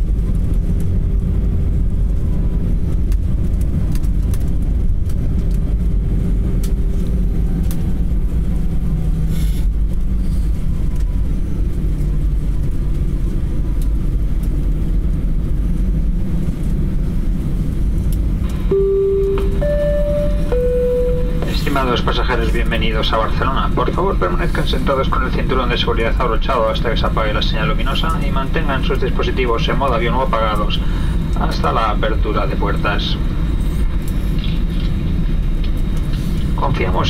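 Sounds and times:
airliner cabin rumble: 0.0 - 37.0
chime tone: 18.6 - 21.6.

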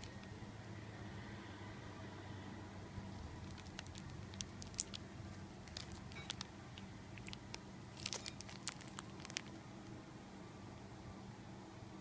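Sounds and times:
plastic bag crinkling: 0.0 - 0.3, 3.4 - 5.0, 5.6 - 9.6.

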